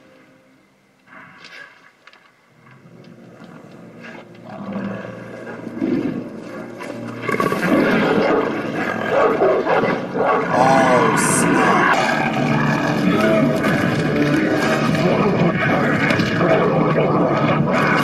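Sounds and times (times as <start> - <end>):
tense film score: 0.0 - 18.0
monster dog growling: 8.8 - 12.7.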